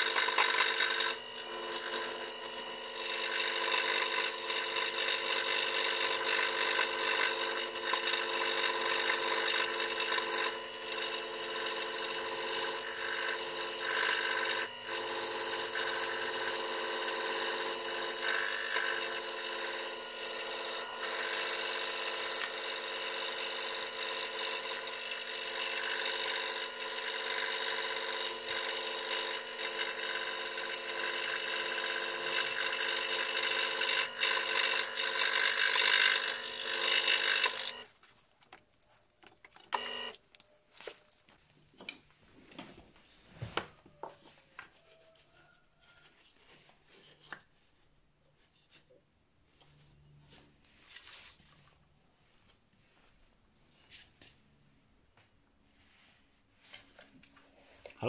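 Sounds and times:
scroll saw cutting wood: 0.0s - 41.4s.

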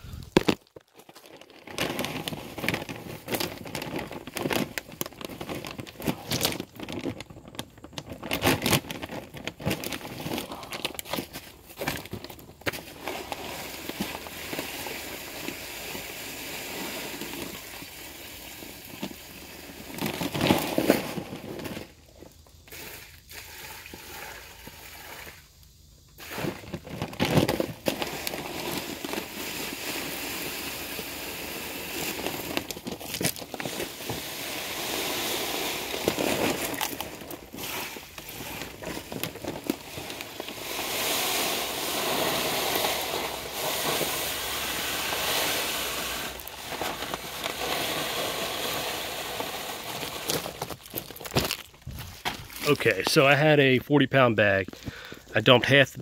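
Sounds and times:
plastic bag crinkling: 0.0s - 22.0s, 26.2s - 53.4s
salt crystals pouring into water: 27.8s - 51.7s.

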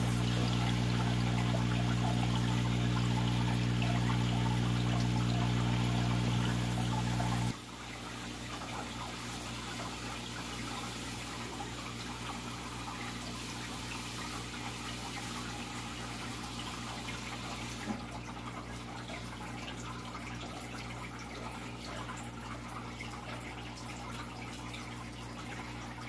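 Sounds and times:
low steady hum: 0.0s - 9.2s
aquarium water trickling: 0.0s - 26.0s.

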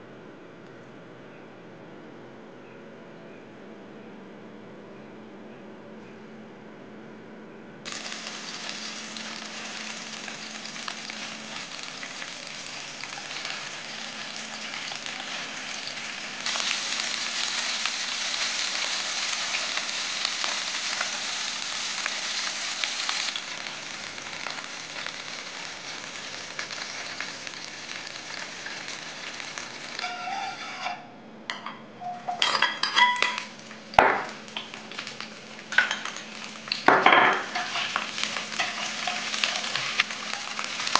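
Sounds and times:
chicken frying in oil: 7.9s - 30.2s, 33.2s - 40.9s.

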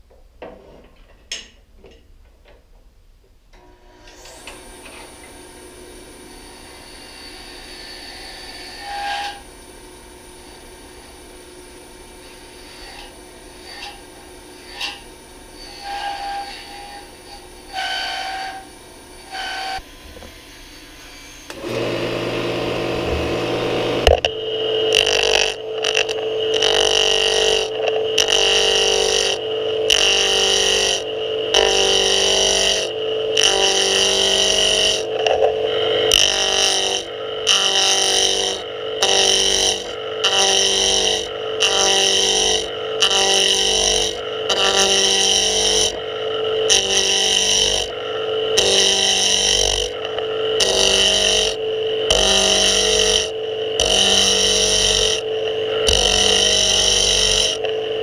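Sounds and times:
lathe motor humming: 3.6s - 58.0s
turning tool scraping wood: 12.3s - 14.0s, 21.3s - 57.8s.

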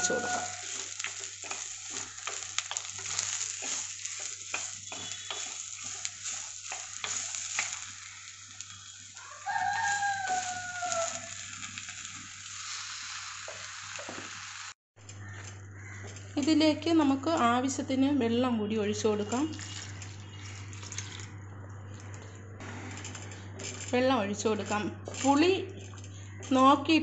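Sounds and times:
rooster crowing: 0.0s - 0.7s, 9.2s - 11.4s
vegetables sizzling in oil: 0.0s - 14.8s.

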